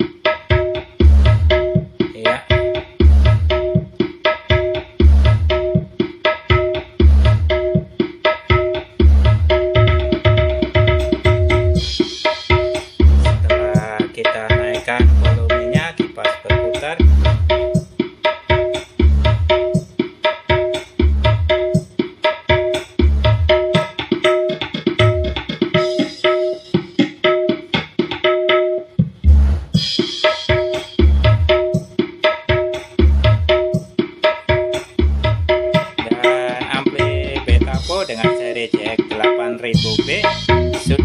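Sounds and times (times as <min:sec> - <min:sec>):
loud electronic music with drums: 0:00.0 - 0:41.0.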